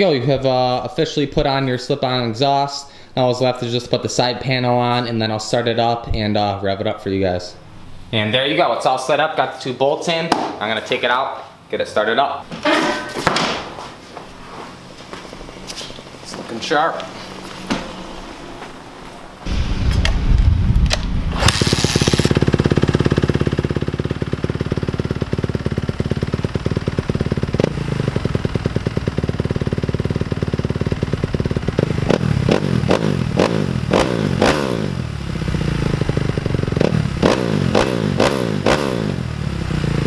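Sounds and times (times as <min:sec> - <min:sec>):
motorcycle engine revving and idling: 0:21.3 - 0:40.0.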